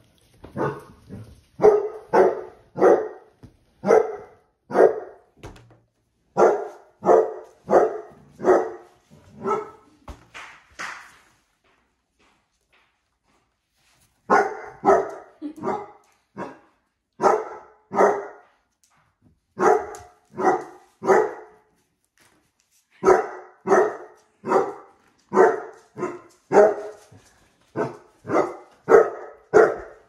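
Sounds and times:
dog barking loudly: 0.6 - 1.0, 1.6 - 5.3, 6.3 - 9.8, 14.3 - 16.6, 17.2 - 18.4, 19.6 - 21.6, 23.0 - 27.0, 27.8 - 30.0.

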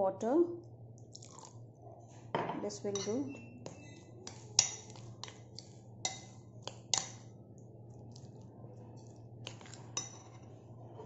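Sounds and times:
spoon scraping batter: 3.0 - 7.3, 7.9 - 10.7.

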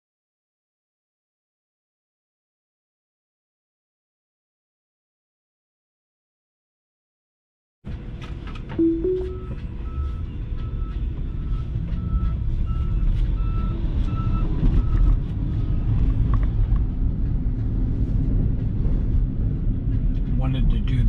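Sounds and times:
two-note rising tone: 8.8 - 9.6
reversing alarm beeping: 8.8 - 15.0.

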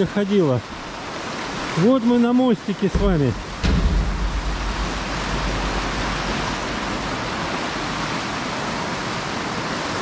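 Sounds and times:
river rushing: 0.0 - 10.0
low rumble: 3.0 - 8.0.

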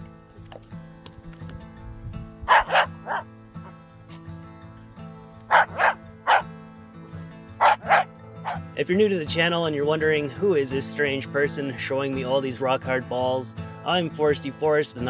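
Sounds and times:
background music: 0.0 - 15.0
dog barking: 2.5 - 3.3, 5.5 - 6.5, 7.6 - 8.6.

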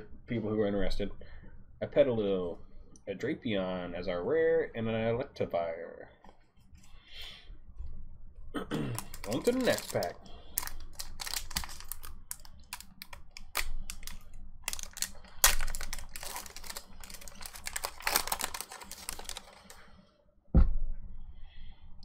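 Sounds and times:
foil wrapper crinkling and tearing: 8.9 - 19.9
low thump: 20.5 - 21.1.

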